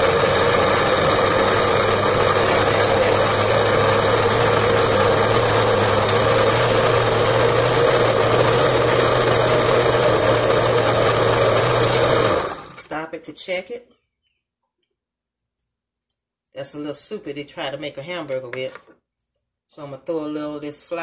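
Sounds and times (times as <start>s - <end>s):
blender motor running: 0.0s - 12.8s.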